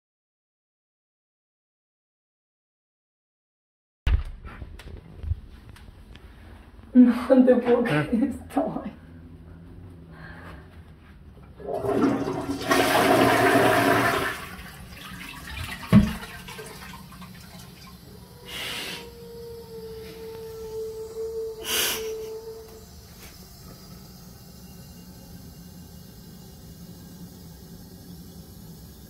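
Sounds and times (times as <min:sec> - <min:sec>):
faint steady whine: 0:04.8 - 0:11.7, 0:16.2 - 0:29.0
toilet flushing: 0:11.5 - 0:19.8, 0:21.9 - 0:29.0.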